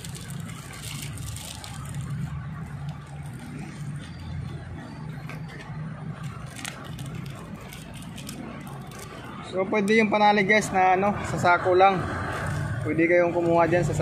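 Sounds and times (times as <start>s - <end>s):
plastic wrap crinkling: 0.0s - 4.6s, 5.3s - 9.4s.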